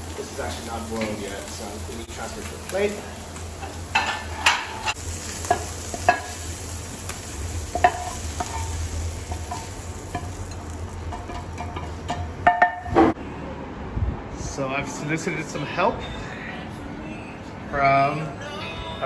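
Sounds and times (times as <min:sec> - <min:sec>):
meat sizzling: 0:00.0 - 0:13.0.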